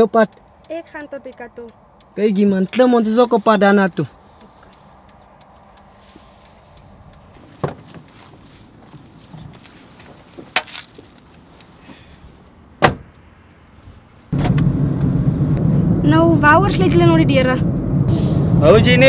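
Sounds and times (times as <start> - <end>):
car door knocks: 7.6 - 8.1, 12.8 - 13.1.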